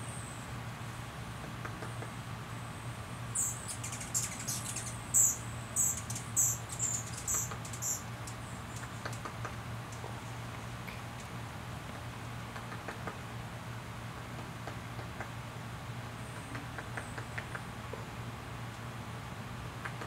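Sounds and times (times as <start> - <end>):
hummingbird chip notes: 3.3 - 9.2.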